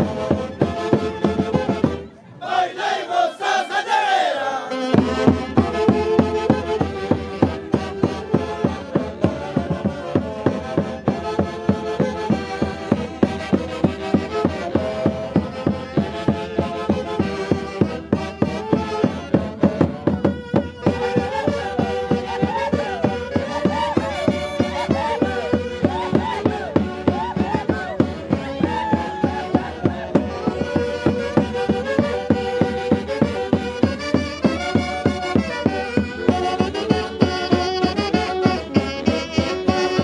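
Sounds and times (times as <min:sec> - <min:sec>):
live band melody: 0:00.0 - 0:02.2, 0:04.7 - 0:40.0
steady driving beat: 0:10.8 - 0:40.0.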